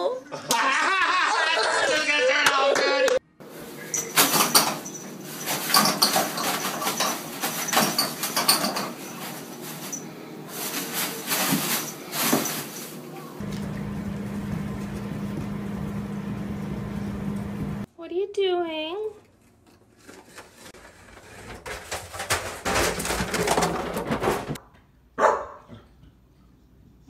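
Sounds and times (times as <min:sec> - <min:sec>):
toilet paper rustling and crinkling: 0:03.4 - 0:13.5, 0:19.3 - 0:24.6.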